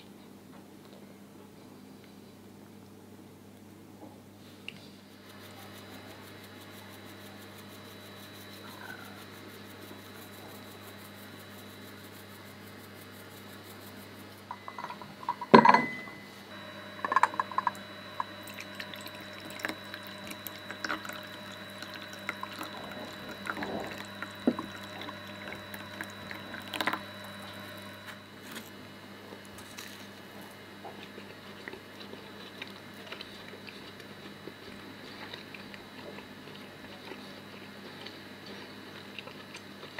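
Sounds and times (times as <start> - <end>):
faint steady hum: 0.0 - 39.9
crockery clinking: 14.5 - 16.2
tea pouring into a cup: 17.0 - 28.0.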